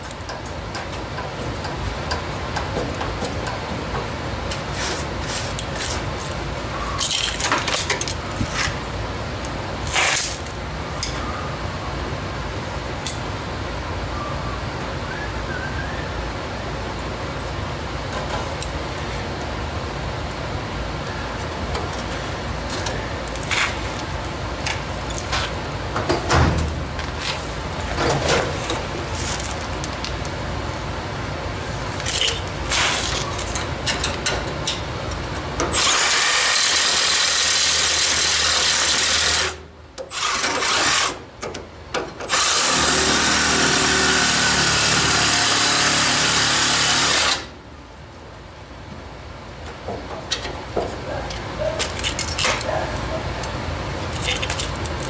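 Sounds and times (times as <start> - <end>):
reciprocating saw cutting steel: 35.7 - 41.2, 42.3 - 47.5
clicks and clatter: 54.1 - 55.0.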